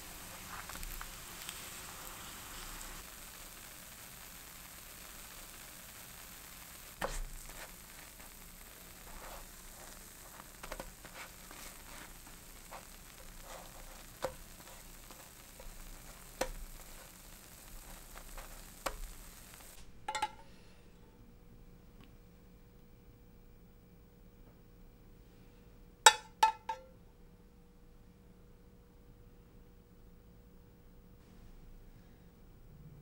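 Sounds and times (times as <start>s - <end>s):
food sizzling in oil: 0.0s - 19.8s.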